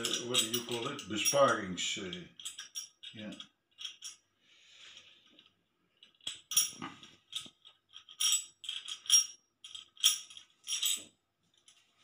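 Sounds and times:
metal parts clinking: 0.0 - 4.2, 5.2 - 11.8.

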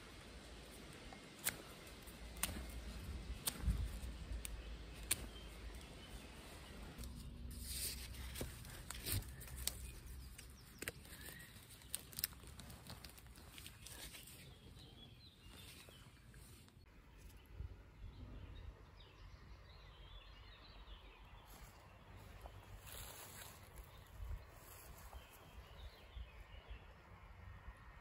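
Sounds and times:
stake rustling in grass: 0.1 - 16.8, 21.5 - 25.9.

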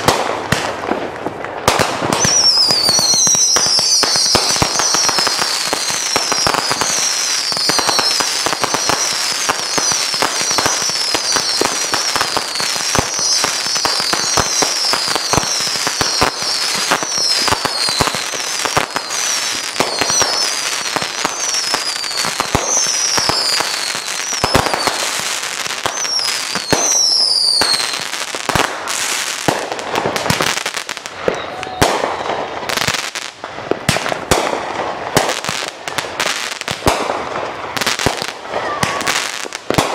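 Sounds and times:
firework bangs: 0.0 - 39.9
fireworks crackling and popping: 0.0 - 39.9
falling firework whistles: 2.1 - 29.5, 30.2 - 33.1.

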